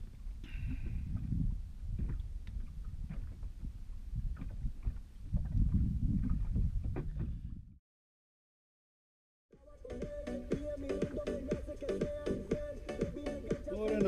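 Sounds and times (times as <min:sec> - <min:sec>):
water noise: 0:00.0 - 0:07.7
wind: 0:00.0 - 0:07.8, 0:09.6 - 0:14.0.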